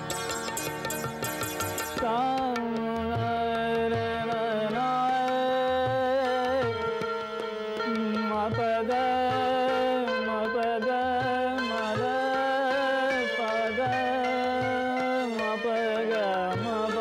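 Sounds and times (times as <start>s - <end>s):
soft tabla strokes: 0.0s - 3.8s.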